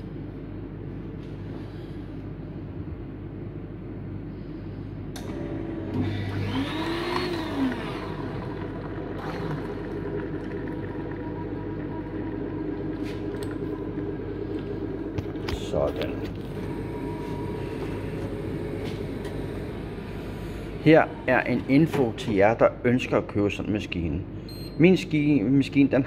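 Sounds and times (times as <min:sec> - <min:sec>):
coffee machine motor and pump hum: 0:00.0 - 0:26.0
whir rising and falling in pitch: 0:05.9 - 0:14.2.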